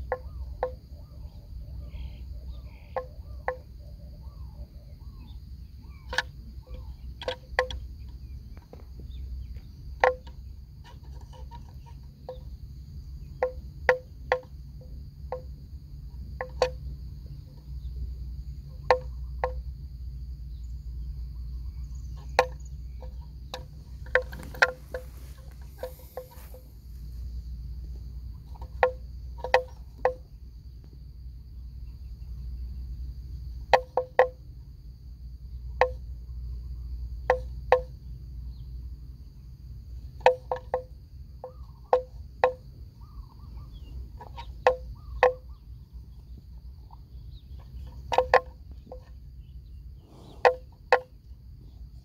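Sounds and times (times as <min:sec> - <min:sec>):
insects droning: 0:00.0 - 0:52.0
buffalo tearing grass: 0:24.2 - 0:27.0.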